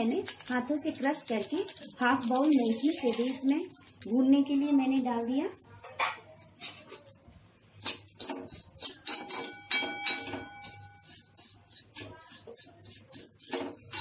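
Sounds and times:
metal spatula scraping a pan: 5.9s - 14.0s
metal pan ringing: 8.8s - 11.1s.

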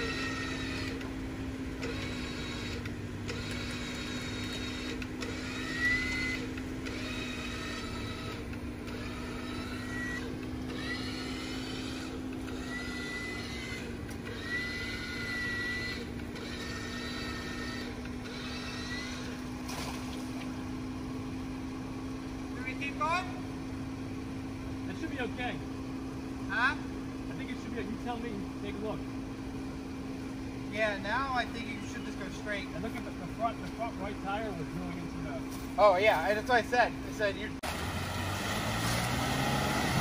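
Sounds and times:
high whining tones: 0.0s - 19.6s
vehicle engine low hum: 0.0s - 40.0s.

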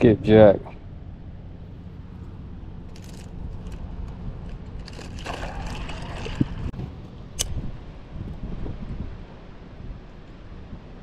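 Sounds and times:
wind rumble on microphone: 0.0s - 11.0s
crunching and scraping on shale: 2.9s - 6.8s
sharp click: 7.4s - 7.6s.

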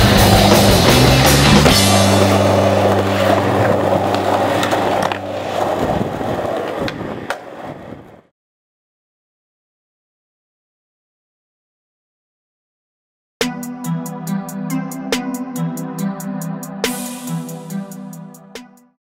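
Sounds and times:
rock band chord: 0.0s - 6.6s
skateboard clacks: 0.0s - 8.2s
skateboard wheels rolling: 0.0s - 8.3s.

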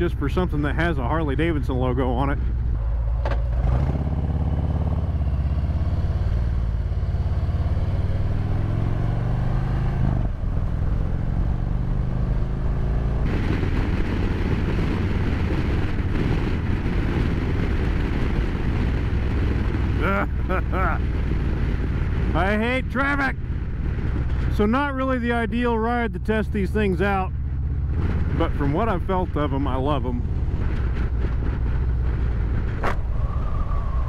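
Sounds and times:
wind noise: 0.0s - 26.0s, 26.8s - 34.0s
motorcycle engine accelerating: 1.1s - 34.0s.

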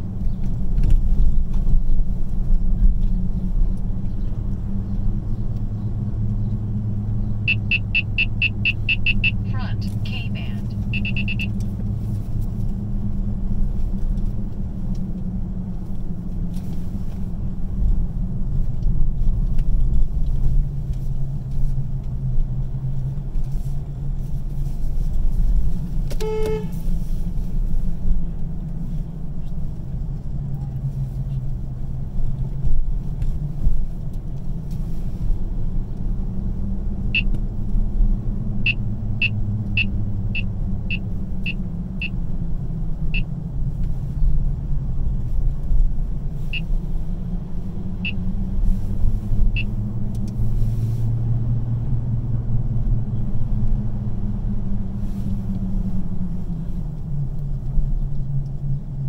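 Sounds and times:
road and engine rumble: 0.0s - 59.0s
car horn toot: 7.5s - 11.6s, 26.1s - 26.9s.

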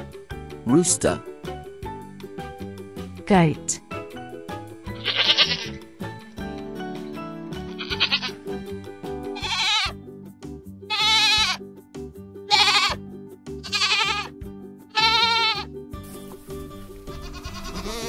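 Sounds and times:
background music: 0.0s - 18.0s
goat bleating: 5.0s - 5.8s, 7.7s - 8.4s, 9.4s - 10.0s, 10.9s - 11.6s, 12.5s - 13.0s, 13.6s - 15.7s, 17.1s - 18.0s.

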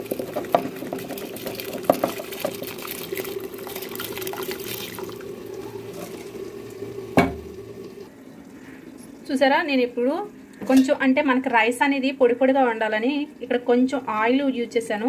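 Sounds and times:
rice pouring into boiling water: 0.0s - 8.0s
low steady hum: 1.1s - 15.0s.

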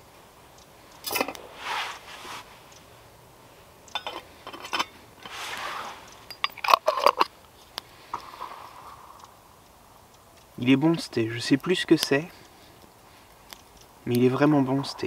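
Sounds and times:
soft rustling: 0.8s - 3.0s, 4.2s - 6.3s
metal mug and lid clinking: 3.9s - 5.4s, 6.2s - 7.3s.

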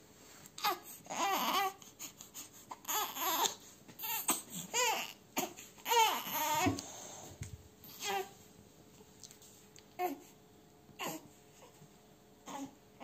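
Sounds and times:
baby whimpering cries: 0.6s - 6.8s, 7.9s - 8.3s, 10.0s - 10.3s, 11.0s - 11.8s, 12.5s - 12.8s.

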